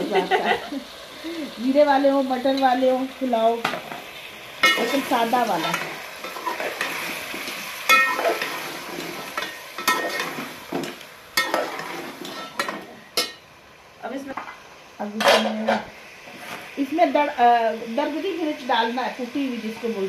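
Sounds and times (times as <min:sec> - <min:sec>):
meat sizzling: 0:00.0 - 0:20.0
spoon scraping and knocking pot: 0:07.9 - 0:13.4.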